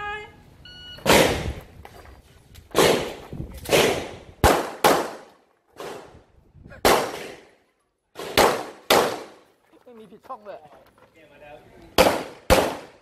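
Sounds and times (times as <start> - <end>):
handgun shots: 2.7 - 5.2, 8.2 - 9.3, 12.0 - 13.0.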